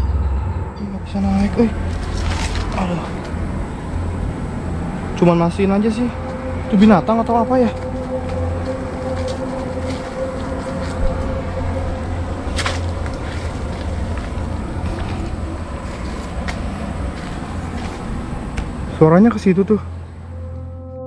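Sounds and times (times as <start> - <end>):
low droning machine hum: 0.0 - 21.0
rustling through undergrowth: 1.4 - 3.4.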